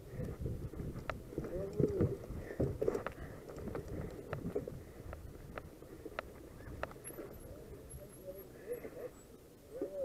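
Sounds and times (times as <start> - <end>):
wind on microphone: 0.0 - 5.8
bike rattling clicks: 0.2 - 7.4.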